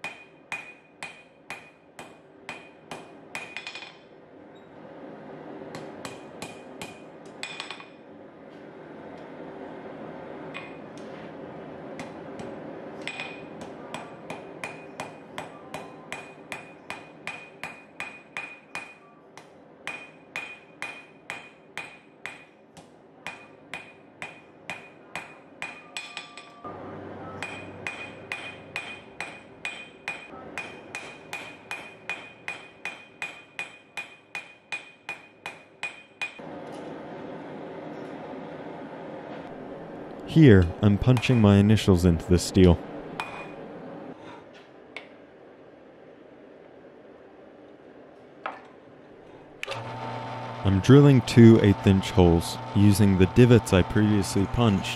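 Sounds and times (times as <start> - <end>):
hammer striking hot metal on anvil: 0.0 - 4.0, 5.8 - 7.9, 12.0 - 19.0, 19.8 - 22.6, 23.3 - 26.6, 27.4 - 36.4.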